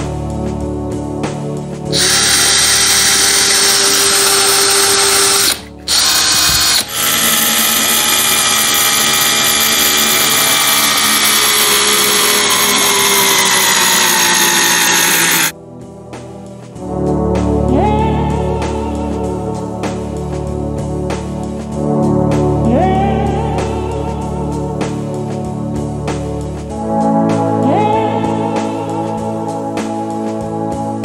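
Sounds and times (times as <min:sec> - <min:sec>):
cordless drill driving screw: 0:01.9 - 0:15.5.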